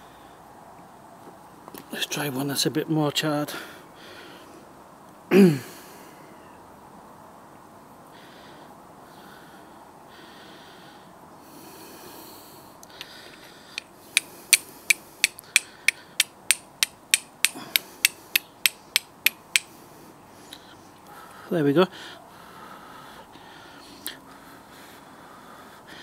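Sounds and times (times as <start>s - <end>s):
steel striking flint: 13.8s - 19.7s.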